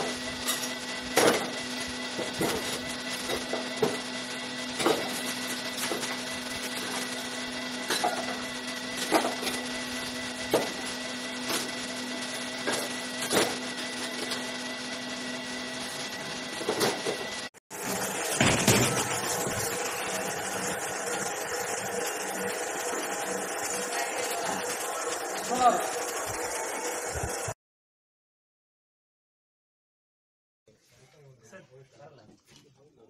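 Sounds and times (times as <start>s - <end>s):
electric motor humming: 0.0s - 27.6s.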